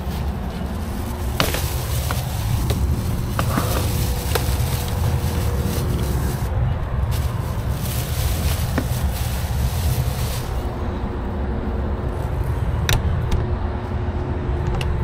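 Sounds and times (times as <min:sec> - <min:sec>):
truck engine idling: 0:00.0 - 0:13.3
faint hum: 0:00.0 - 0:15.0.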